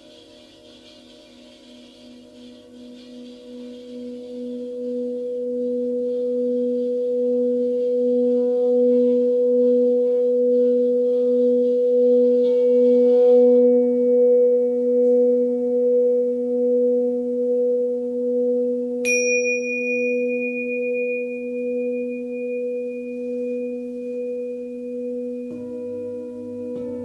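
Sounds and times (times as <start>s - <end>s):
lower tone: 0.0s - 27.0s
singing bowl humming: 0.0s - 27.0s
tingsha cymbals ringing: 0.0s - 27.0s.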